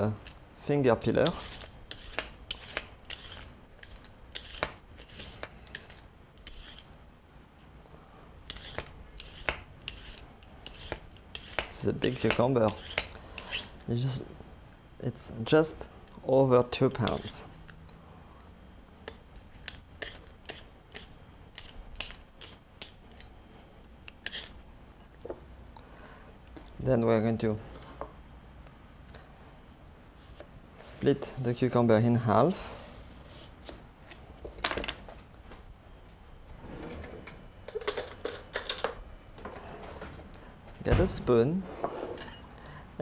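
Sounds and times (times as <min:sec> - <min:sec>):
peeler scraping cucumber: 0:01.0 - 0:06.9, 0:08.5 - 0:13.7, 0:17.0 - 0:17.4, 0:19.6 - 0:23.0, 0:24.2 - 0:24.6.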